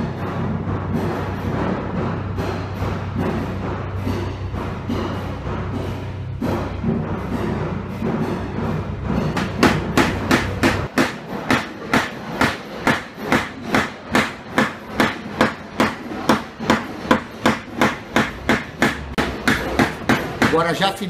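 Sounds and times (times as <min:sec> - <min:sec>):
tapping on sheet metal: 0:09.4 - 0:21.0.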